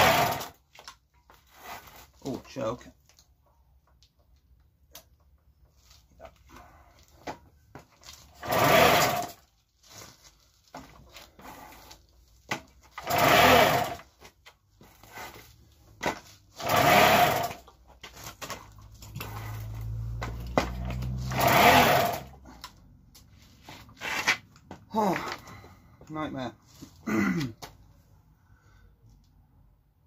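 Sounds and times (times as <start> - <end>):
moped engine cranking: 0.0 - 0.6, 8.2 - 9.5, 12.8 - 14.2, 16.0 - 22.4.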